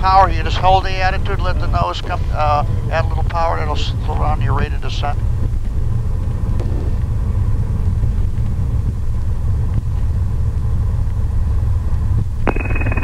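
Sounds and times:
aircraft engine rumble in cabin: 0.0s - 13.0s.

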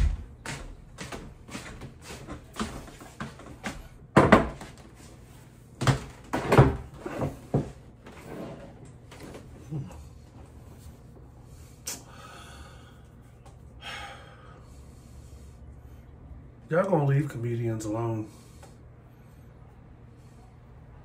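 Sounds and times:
footsteps walking: 0.0s - 4.0s.

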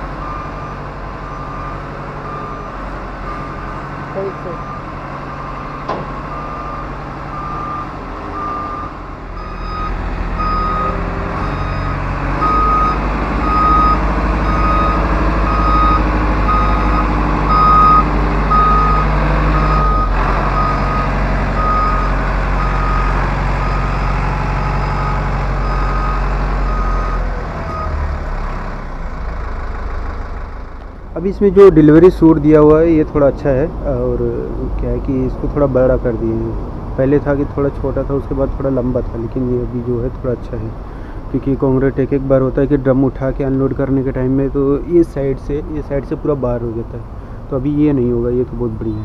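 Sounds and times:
reversing alarm beeping: 0.2s - 28.0s.

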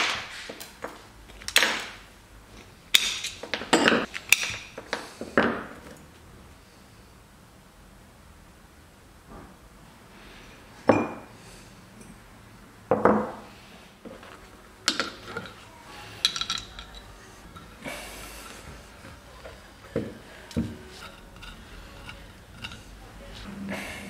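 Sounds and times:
metal parts knocking and clinking: 16.2s - 17.8s
metal scraping on workbench: 20.6s - 23.0s.

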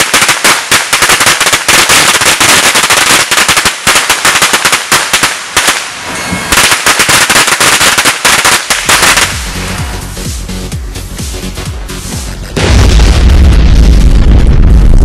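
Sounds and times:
firecracker pops: 0.0s - 9.5s
hissing sparks: 0.0s - 10.2s
background music with beat: 8.8s - 12.6s.

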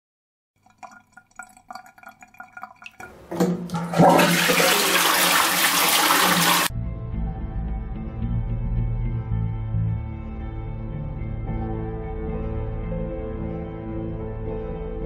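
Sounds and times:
toilet flushing: 0.7s - 6.7s.

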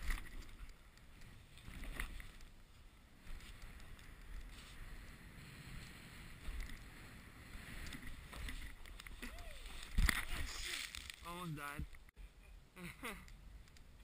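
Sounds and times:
snowboard edge scraping: 1.3s - 11.2s
snowboard sliding through snow: 2.7s - 8.6s.

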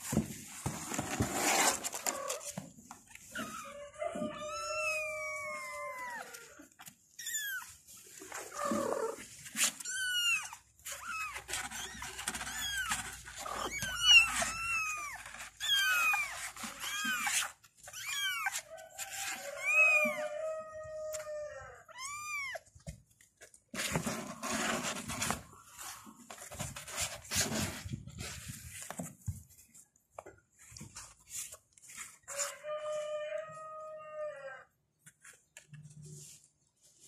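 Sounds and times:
kittens meowing: 3.3s - 7.7s, 9.8s - 22.7s.

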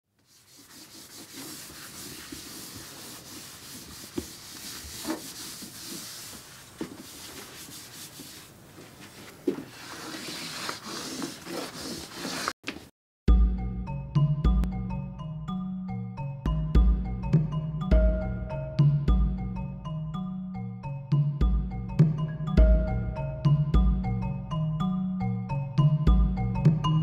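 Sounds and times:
drawing stick scratching on paper: 0.2s - 8.5s, 9.6s - 12.6s
stick tapping paper: 0.2s - 8.5s.

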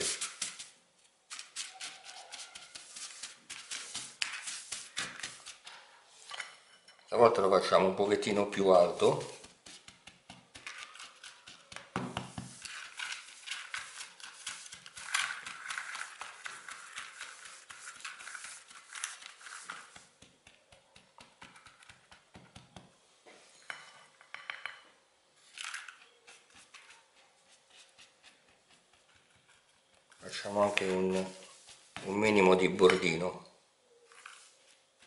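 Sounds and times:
spatula scraping crumbs in foil tin: 1.3s - 5.7s, 8.6s - 20.1s, 25.5s - 32.0s.

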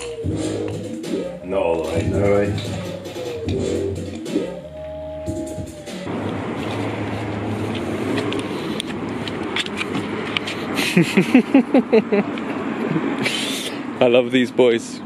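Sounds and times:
men's voices: 1.4s - 2.8s.

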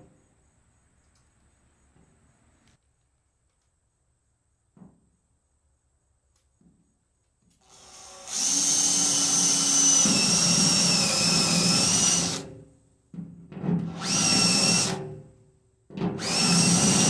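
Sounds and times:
cordless drill whining: 7.6s - 12.5s, 13.9s - 15.0s, 16.2s - 17.0s.

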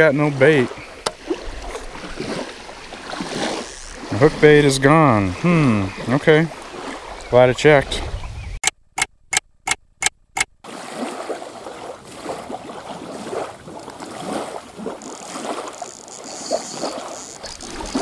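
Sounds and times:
waves lapping on shore: 0.0s - 8.3s, 10.4s - 18.0s.

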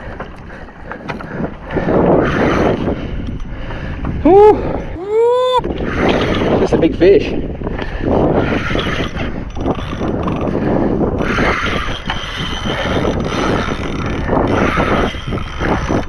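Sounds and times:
fishing reel gears whirring: 8.3s - 16.0s.

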